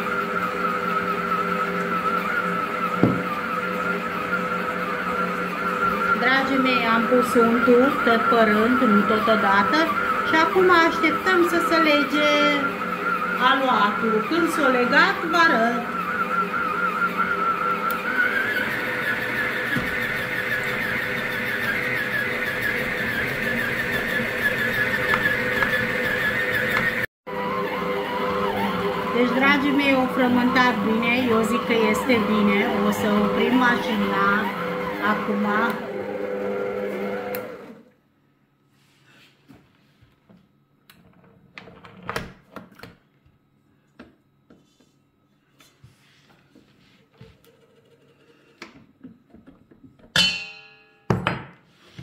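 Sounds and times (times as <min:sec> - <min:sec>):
stand mixer motor whine: 0:00.0 - 0:38.0.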